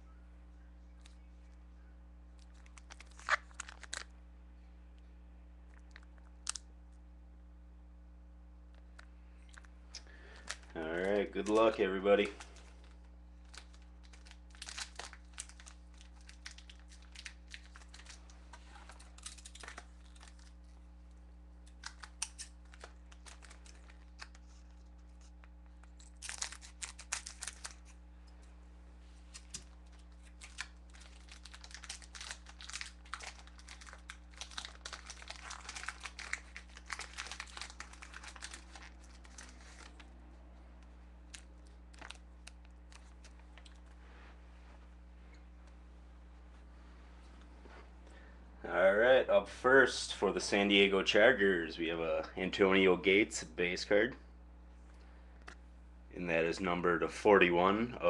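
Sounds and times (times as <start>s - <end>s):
faint steady hum: 0.0s - 58.0s
plastic wrapper crinkling: 2.4s - 4.1s, 5.7s - 6.6s, 8.9s - 28.0s, 29.1s - 40.2s, 40.8s - 44.0s
scissors cutting plastic pack: 26.1s - 28.0s, 29.3s - 40.0s.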